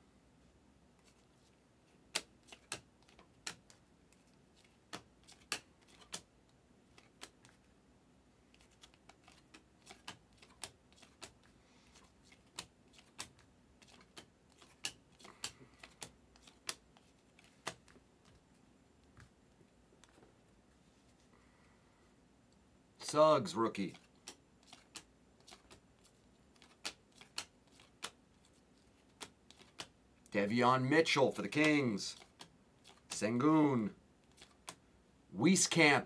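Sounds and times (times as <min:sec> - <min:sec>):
trading cards clicking as flipped: 0:02.1 - 0:06.3, 0:06.9 - 0:07.6, 0:08.5 - 0:18.4, 0:23.9 - 0:29.9, 0:31.6 - 0:33.2, 0:34.3 - 0:34.8.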